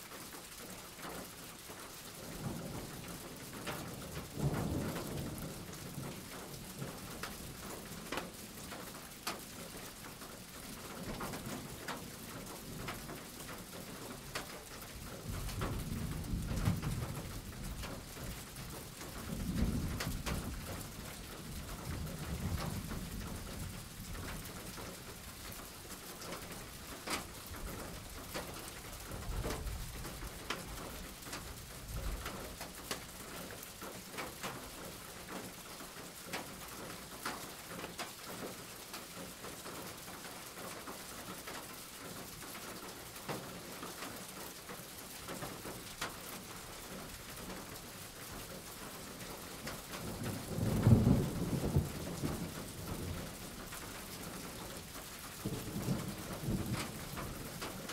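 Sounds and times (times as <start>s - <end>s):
steady rain: 0.0s - 57.9s
thunder rumble: 50.1s - 53.8s.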